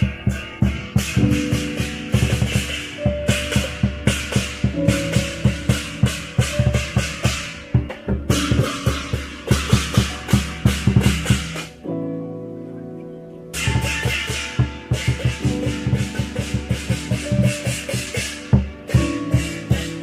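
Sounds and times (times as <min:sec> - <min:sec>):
large drum beaten quickly: 0:00.0 - 0:11.7, 0:13.6 - 0:20.0
hand cymbals clashing: 0:00.0 - 0:11.8, 0:13.6 - 0:20.0.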